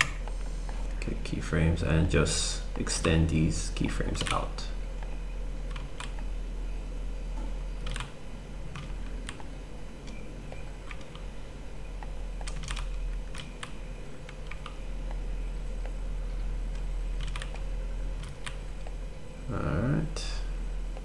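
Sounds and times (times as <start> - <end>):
steady low hum: 0.0 - 21.0
keyboard and mouse clicks: 4.2 - 4.4, 7.8 - 11.3, 12.0 - 15.2, 16.7 - 19.0.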